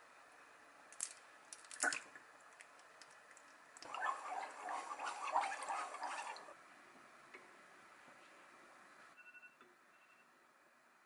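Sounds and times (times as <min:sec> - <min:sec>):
sauce sloshing in a pan: 0:02.9 - 0:06.5.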